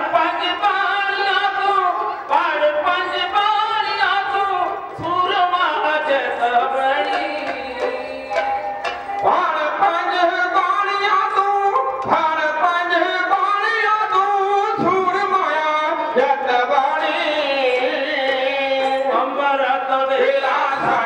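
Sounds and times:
group singing: 0.0s - 21.0s
hand drums struck: 7.0s - 9.4s.

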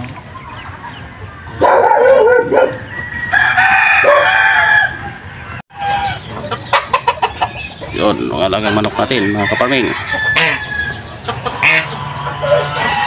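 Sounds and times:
rooster crowing: 1.6s - 6.2s, 8.7s - 11.8s, 12.4s - 13.0s.

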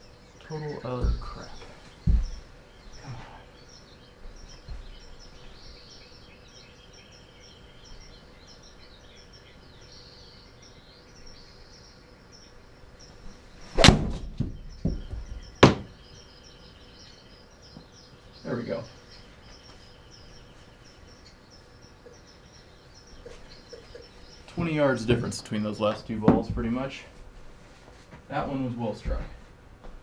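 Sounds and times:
golf club striking ball: 13.8s - 14.3s
ball smacking impact screen: 13.8s - 14.5s
ball dropping and rebounding thuds: 13.8s - 15.9s.

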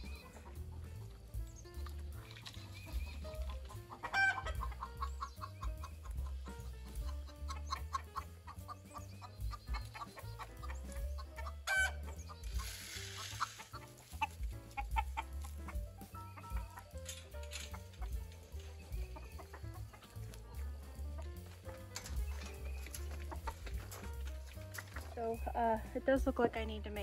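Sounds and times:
chickens clucking: 0.0s - 25.8s
chicken squawks: 3.7s - 5.3s, 7.5s - 13.9s.

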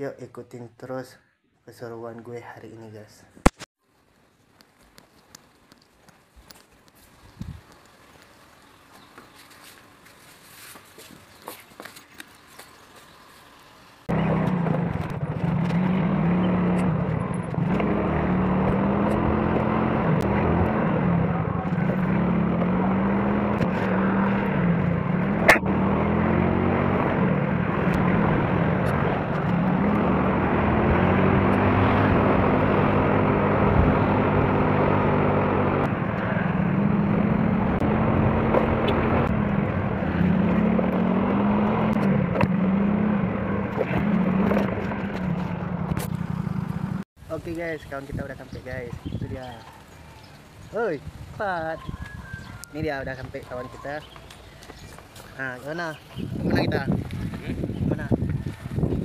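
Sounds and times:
wind on microphone: 7.3s - 7.7s, 51.0s - 52.8s, 56.0s - 59.0s
motor scooter engine: 14.1s - 47.0s.

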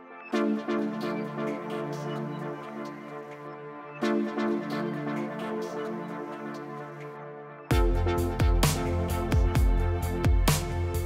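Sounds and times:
deep bass and drum hits: 7.7s - 11.0s.

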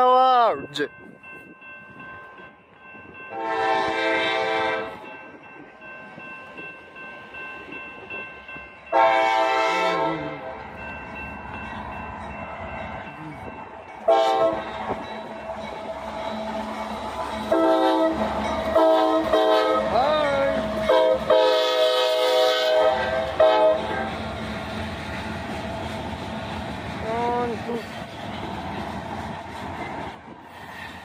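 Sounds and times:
train rumble: 0.0s - 31.0s
train air horn blasts: 3.3s - 5.0s, 8.9s - 10.6s, 14.1s - 15.0s, 17.5s - 20.0s, 20.8s - 24.2s.

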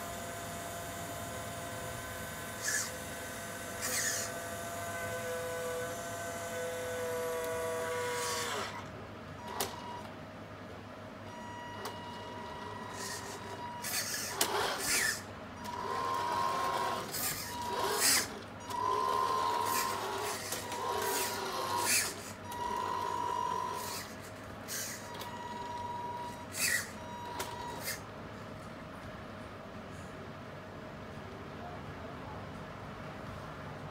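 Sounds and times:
electric motor whine: 0.0s - 8.8s, 13.0s - 24.1s.

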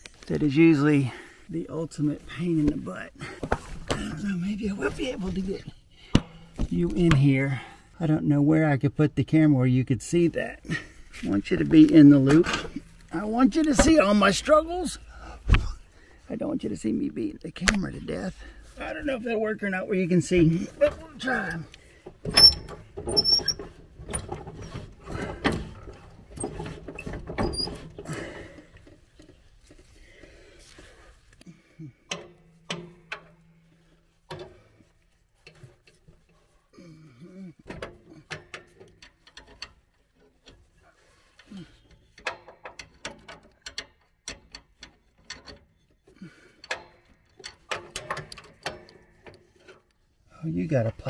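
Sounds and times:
handling and knocking noises: 2.5s - 7.4s, 10.7s - 15.9s, 20.2s - 36.7s, 37.6s - 50.0s
wrench clicking on metal: 41.9s - 46.0s.

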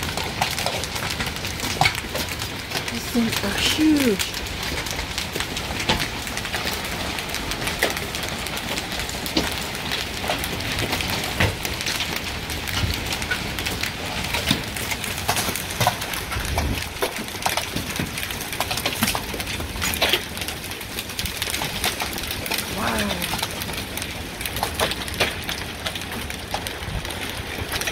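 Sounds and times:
hailstones knocking on ground: 0.0s - 27.9s
hiss of falling rain and hail: 0.0s - 27.9s.

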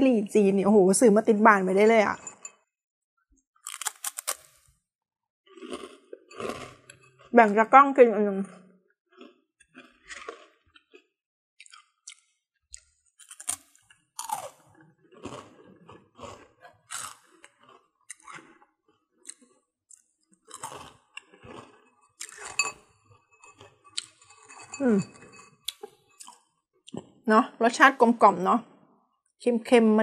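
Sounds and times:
toast crunching while chewed: 3.6s - 4.7s, 5.5s - 7.3s, 9.1s - 26.5s.

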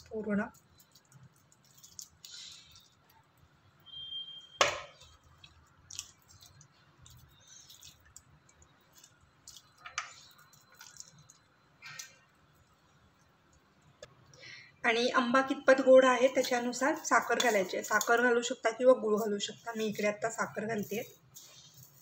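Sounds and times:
wet squelches of fruit pulp: 4.9s - 12.6s.

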